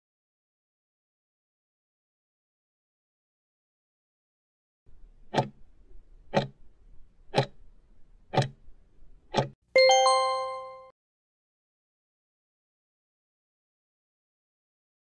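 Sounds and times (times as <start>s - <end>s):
clock ticking: 5.3s - 5.6s, 6.2s - 6.6s, 7.3s - 7.6s, 8.3s - 8.6s, 9.3s - 9.6s
bell-like chime: 9.8s - 10.9s.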